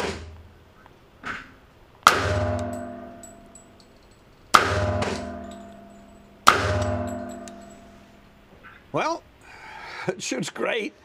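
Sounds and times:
pistol shots with ringing echo: 2.1 - 3.9, 4.5 - 8.5.

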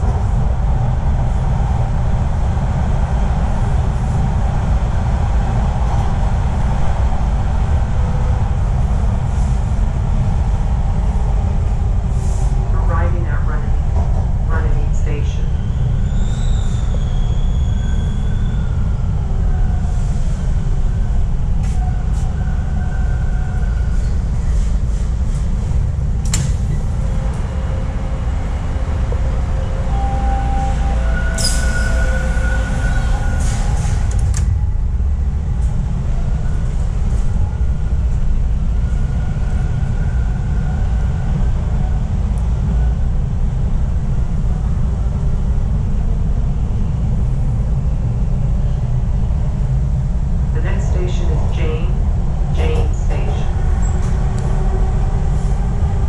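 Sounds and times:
subway train wheels rumbling: 0.0 - 56.0
wheel squeal: 15.7 - 18.7, 31.3 - 33.6.

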